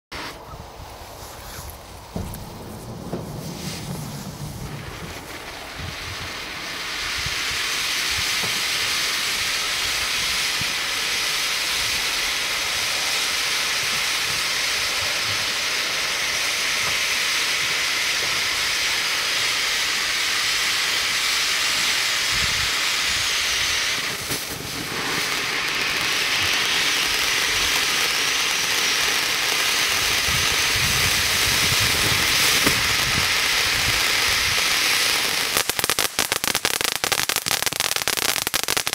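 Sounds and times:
firework hissing: 0:00.1 - 0:38.9.

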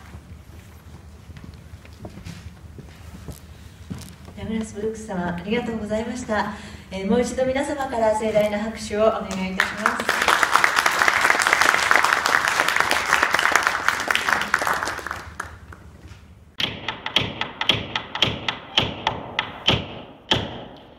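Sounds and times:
audience applause: 0:09.6 - 0:15.9.

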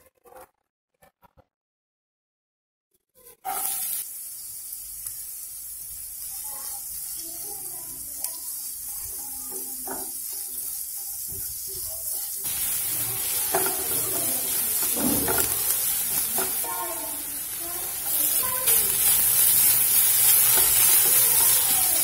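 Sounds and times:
onions sizzling in hot oil: 0:03.2 - 0:22.0
wooden spatula scraping pan: 0:09.0 - 0:16.8, 0:18.0 - 0:22.0.

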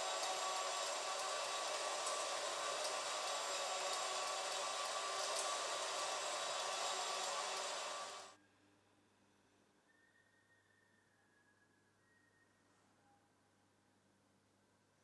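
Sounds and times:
mechanism whirring hiss: 0:00.0 - 0:08.4.

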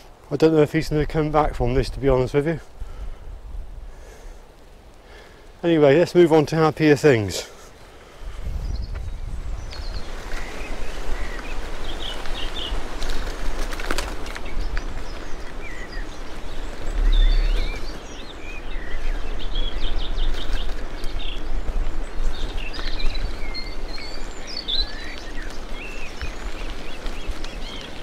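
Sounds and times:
wind and tyre rumble: 0:00.0 - 0:28.0
small birds chirping: 0:05.0 - 0:28.0.

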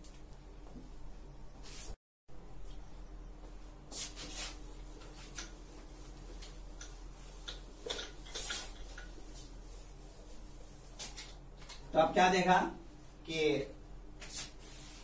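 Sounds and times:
duster scrubbing a whiteboard: 0:03.9 - 0:11.4.

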